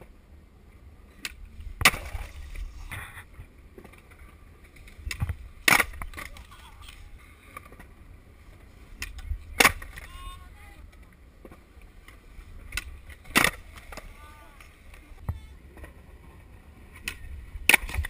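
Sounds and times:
skateboards clacking on concrete: 1.2s - 18.0s
wind rumble on microphone: 8.6s - 10.9s.

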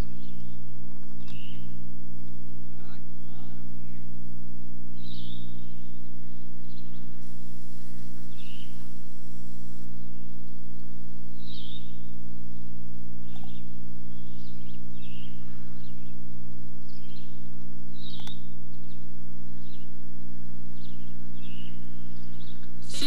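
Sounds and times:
loud steady low hum: 0.0s - 23.0s.

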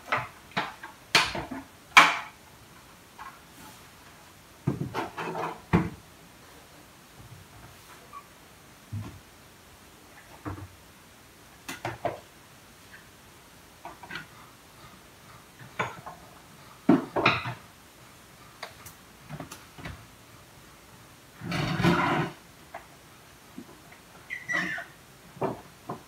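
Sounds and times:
dishes clattering on countertop: 16.9s - 17.6s.

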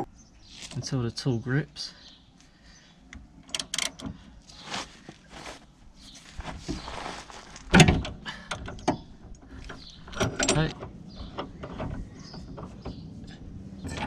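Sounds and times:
ratchet metallic clicks and clunks: 3.1s - 4.2s, 7.7s - 13.0s, 13.8s - 14.0s.

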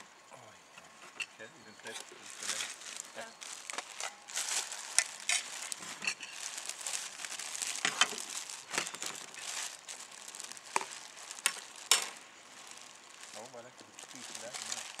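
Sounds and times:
packaging crinkling: 2.1s - 15.0s.

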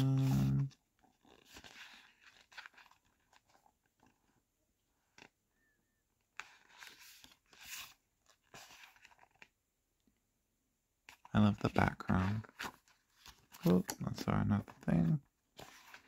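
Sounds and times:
page turning: 0.0s - 4.3s, 6.3s - 9.6s, 11.1s - 16.0s
paper pages rustling: 0.0s - 4.4s, 6.3s - 9.6s, 11.1s - 16.0s.

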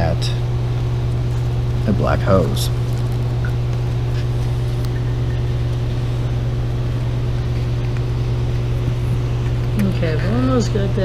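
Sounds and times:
low machinery hum: 0.0s - 11.0s.

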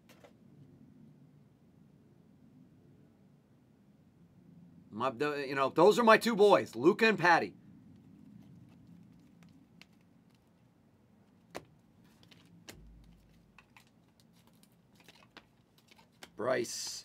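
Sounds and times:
trading cards flipping: 11.3s - 17.0s.

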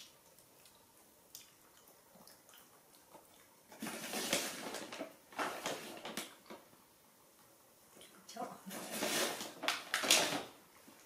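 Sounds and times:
foil bag crinkling: 3.8s - 6.7s, 8.7s - 10.6s.

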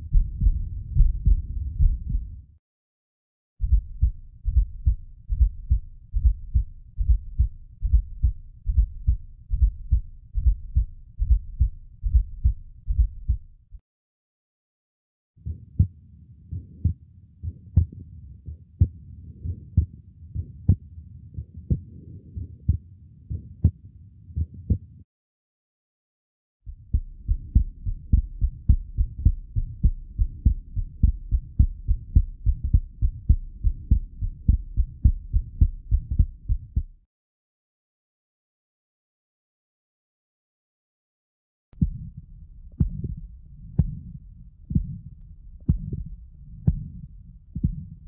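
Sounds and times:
fast child heartbeat: 0.0s - 2.3s, 3.6s - 13.5s, 16.5s - 20.8s, 21.4s - 23.8s, 24.4s - 24.9s, 26.7s - 37.0s, 42.8s - 47.0s, 47.6s - 48.0s
heartbeat with murmur: 0.0s - 2.4s, 3.6s - 13.6s, 15.4s - 25.0s, 26.7s - 37.0s, 41.8s - 48.0s.

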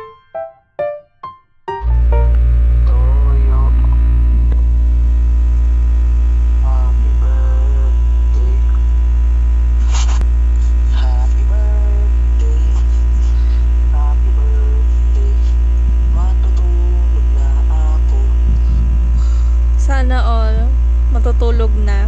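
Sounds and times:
electrical mains hum: 1.7s - 22.0s
faint voices from video call: 2.9s - 4.0s, 6.6s - 8.8s, 9.8s - 18.8s.

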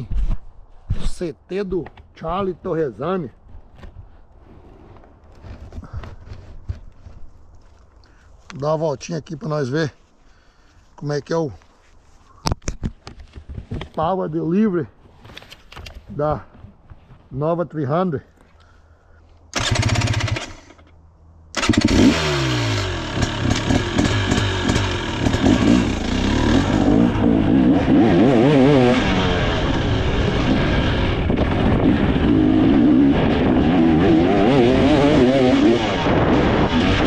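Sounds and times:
dirt bike engine revving: 19.6s - 20.8s, 21.6s - 37.0s.

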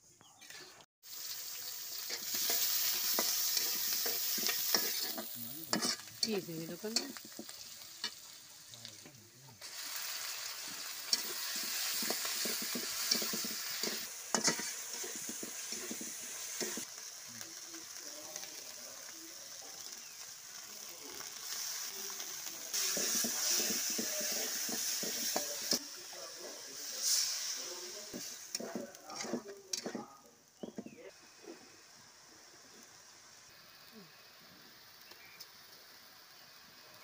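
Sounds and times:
onions sizzling in oil: 0.4s - 37.0s
metal spatula scraping pan: 2.1s - 8.2s, 11.1s - 16.8s, 28.1s - 30.9s.

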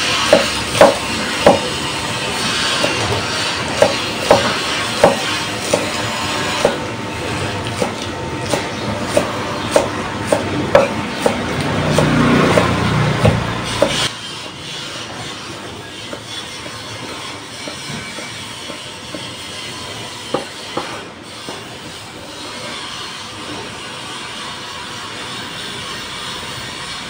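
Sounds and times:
steady background noise: 0.0s - 27.0s
cleaver chopping on wooden block: 0.3s - 1.7s, 3.8s - 6.0s, 7.8s - 14.1s.

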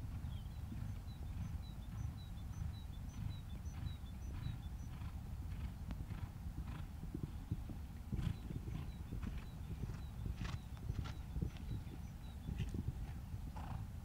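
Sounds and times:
hoofbeats on sand: 0.0s - 13.9s.

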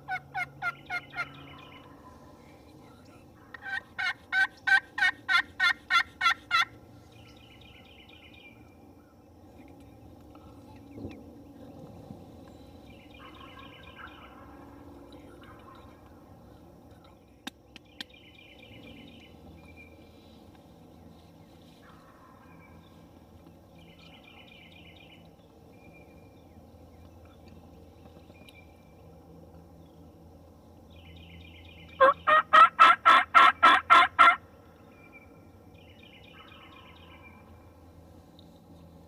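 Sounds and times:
faint songbirds singing: 0.0s - 4.7s, 6.4s - 32.6s, 34.4s - 39.0s
low steady rumble: 0.0s - 39.0s
turkey yelps: 0.1s - 1.3s, 3.5s - 6.7s, 32.0s - 34.4s.

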